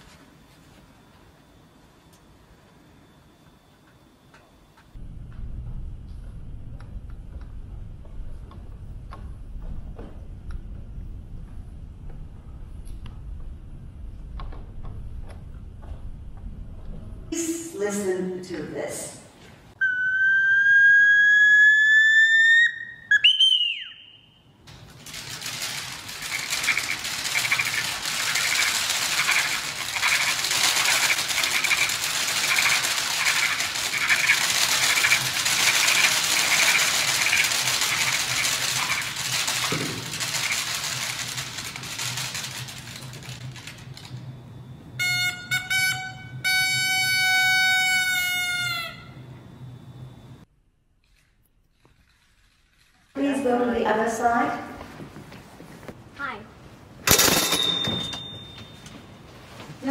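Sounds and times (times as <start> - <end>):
bird-call whistle: 19.8 - 24.6.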